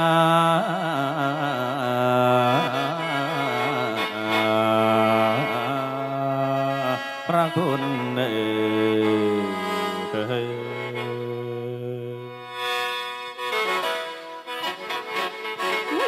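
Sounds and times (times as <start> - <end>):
person singing ornamented line: 0.0 - 12.5.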